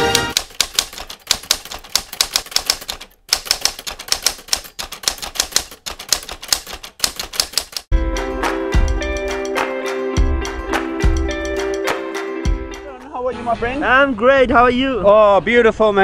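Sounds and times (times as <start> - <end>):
typewriter keys clacking: 0.0 - 7.9.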